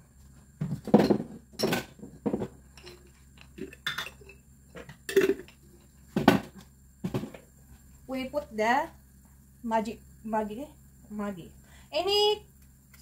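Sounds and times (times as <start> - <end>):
dishes and utensils clattering: 0.9 - 4.4.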